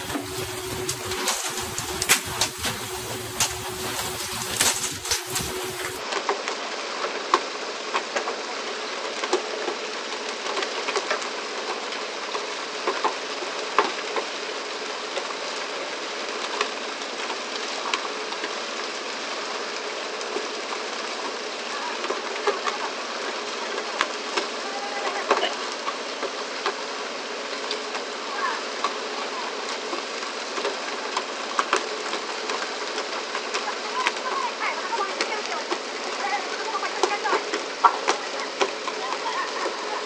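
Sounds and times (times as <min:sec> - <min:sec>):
water spraying along hull: 0:00.0 - 0:06.0, 0:28.0 - 0:40.0.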